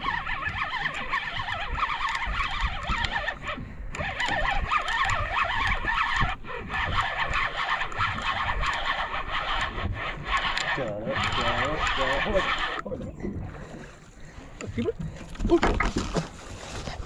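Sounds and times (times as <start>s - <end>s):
fishing reel whirring and clicking: 0.0s - 12.9s
low rumble: 12.8s - 16.4s.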